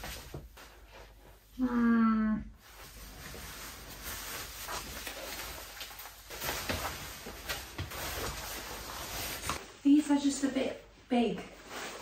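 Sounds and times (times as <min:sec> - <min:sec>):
cloth rustling: 0:02.6 - 0:09.7, 0:11.4 - 0:12.0.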